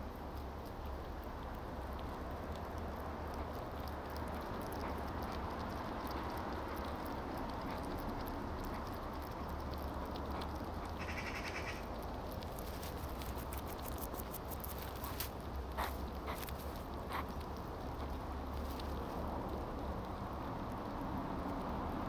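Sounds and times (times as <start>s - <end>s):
hedgehog clicks and sniffs: 0.0s - 22.0s
hedgehogs rustling in grass: 3.4s - 20.2s.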